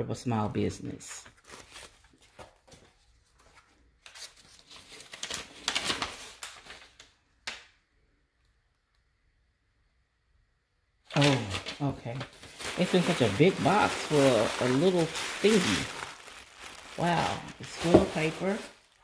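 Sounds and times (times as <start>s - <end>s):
paper rustling and crinkling: 1.2s - 7.2s, 11.1s - 19.0s.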